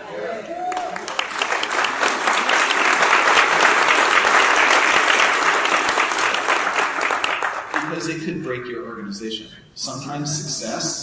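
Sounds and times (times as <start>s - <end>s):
large audience applauding: 0.2s - 8.0s
people talking: 7.8s - 11.0s.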